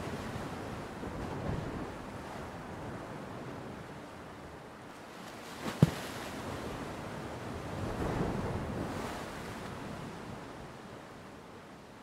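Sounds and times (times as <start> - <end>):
ocean waves breaking: 5.2 - 10.0.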